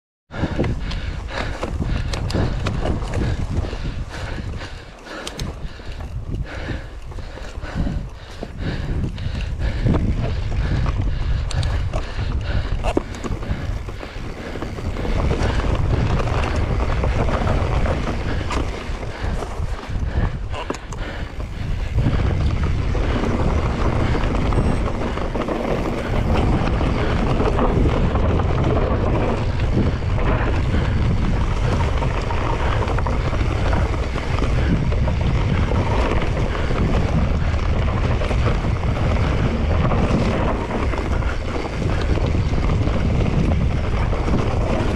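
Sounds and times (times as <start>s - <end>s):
wind buffeting microphone: 0.3s - 44.9s.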